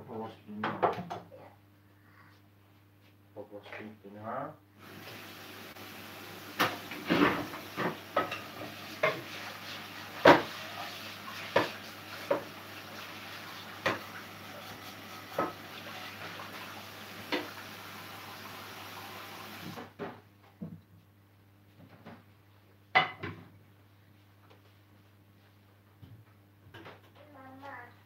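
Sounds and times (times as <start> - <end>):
pan and utensils clinking: 6.6 - 17.6.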